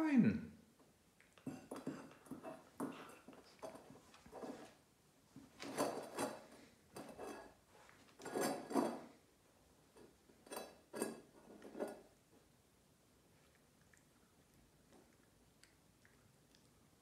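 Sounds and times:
tin bowl scraping on wooden floor: 1.7s - 4.8s, 5.6s - 9.2s.

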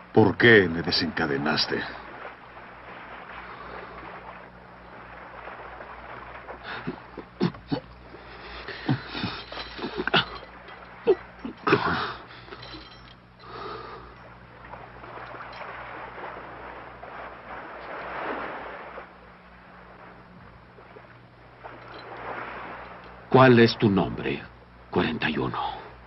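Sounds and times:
sea washing: 0.0s - 26.0s
men grunting and gasping: 6.6s - 10.5s, 11.1s - 12.9s
iron chains clinking: 8.6s - 14.4s.

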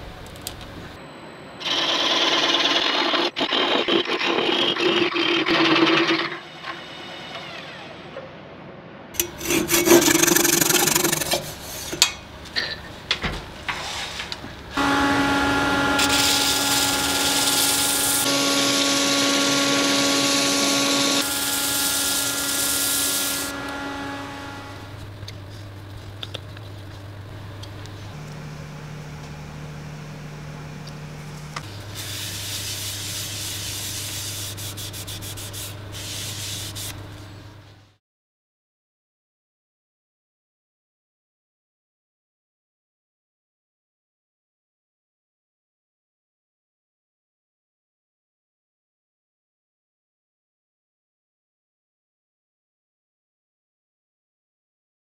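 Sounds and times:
sanding wood on a lathe: 9.2s - 11.9s, 14.8s - 26.1s, 30.0s - 37.0s
motor whine: 14.6s - 34.3s.

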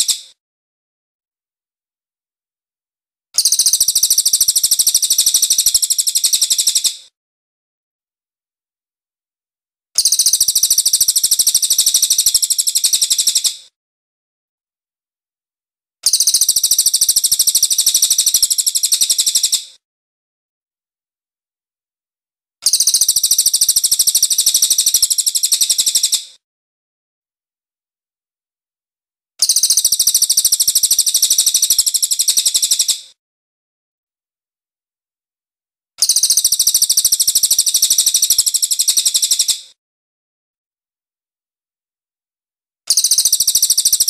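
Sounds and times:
bird high-pitched trill: 10.0s - 13.2s, 16.0s - 19.6s, 22.6s - 26.2s, 29.4s - 32.9s, 36.0s - 39.5s, 42.9s - 44.0s.

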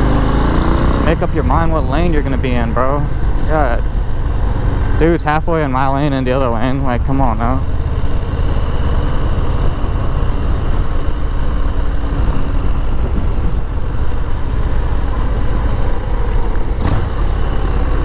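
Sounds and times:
motorcycle engine running: 0.0s - 18.0s
brief thump: 16.8s - 17.2s.

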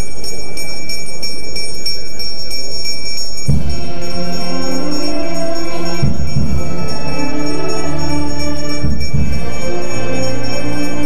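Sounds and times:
bells jingling: 0.0s - 11.0s
noisy background: 0.0s - 11.0s
music with sustained chords: 3.4s - 11.0s.

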